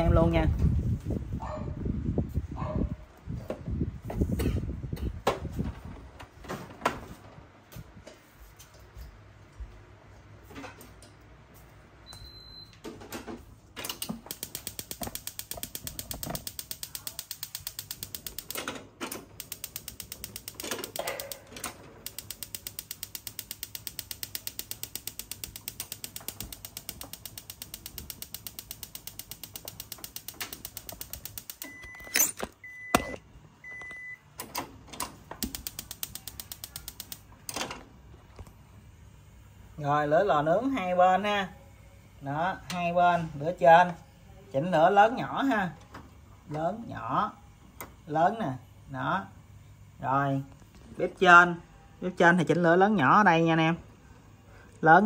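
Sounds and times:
short electronic beeps: 12.0s - 12.8s, 31.6s - 34.2s
gas stove igniter clicking: 13.8s - 37.8s.

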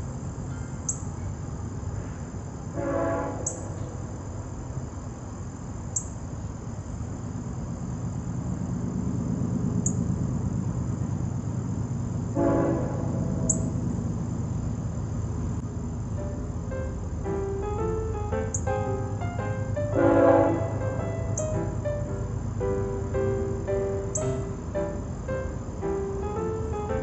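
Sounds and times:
insect drone: 0.0s - 27.0s
low honk: 2.7s - 3.8s, 12.4s - 13.7s, 19.8s - 22.0s
bird chip notes: 16.2s - 27.0s.

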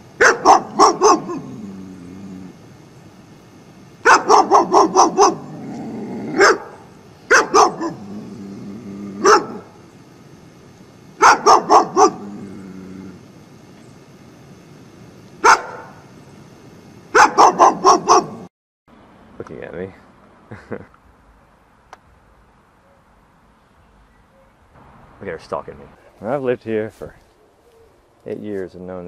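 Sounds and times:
dog barking aggressively: 0.2s - 1.6s, 4.0s - 8.2s, 9.2s - 9.8s, 11.2s - 12.4s, 15.4s - 16.0s, 17.1s - 18.5s.

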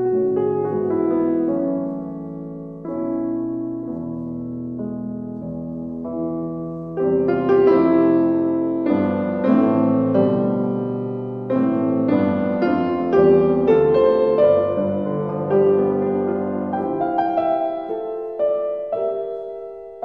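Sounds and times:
gentle piano chords: 0.0s - 20.0s.

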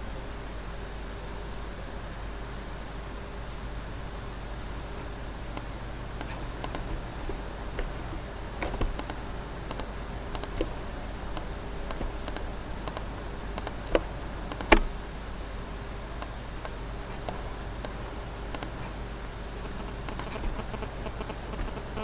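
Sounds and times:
computer mouse clicking: 5.5s - 15.0s, 16.2s - 19.0s, 19.6s - 22.0s.

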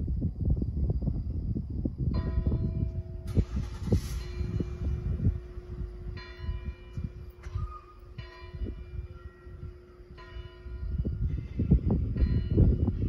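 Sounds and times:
low uneven rumbling: 1.4s - 13.0s
church bell tolling: 2.2s - 3.3s, 4.1s - 13.0s.

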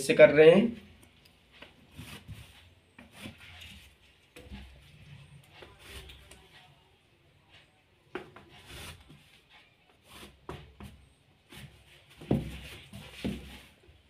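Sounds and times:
wooden scale scraping on fabric: 1.9s - 4.8s, 8.4s - 10.8s.

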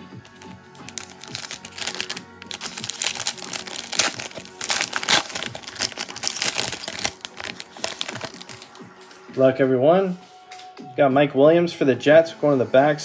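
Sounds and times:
foil wrapper crinkling: 0.3s - 8.7s.

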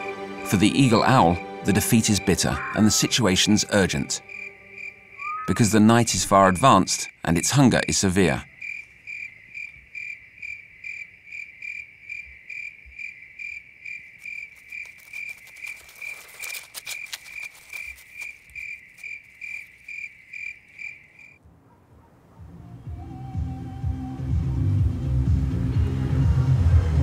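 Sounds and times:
cricket chirping: 2.0s - 21.4s
brief rustling: 14.2s - 20.8s.

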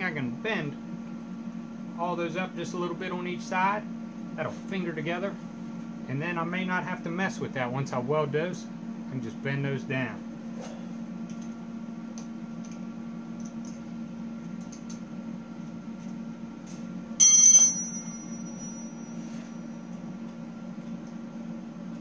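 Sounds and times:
loud metallic clang ringing: 17.2s - 19.0s.

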